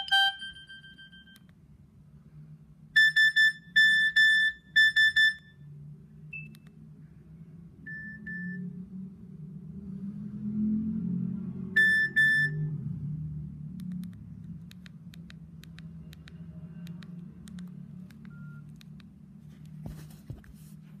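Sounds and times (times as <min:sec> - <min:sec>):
phone alert beeps: 0:00.0 - 0:01.5, 0:11.8 - 0:12.7, 0:18.3 - 0:18.7.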